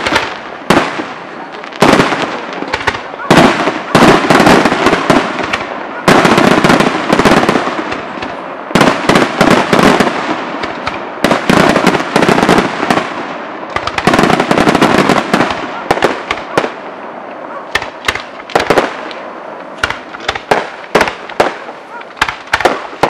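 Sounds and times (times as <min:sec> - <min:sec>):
firework shells bursting: 0:13.7 - 0:16.7, 0:17.7 - 0:23.0.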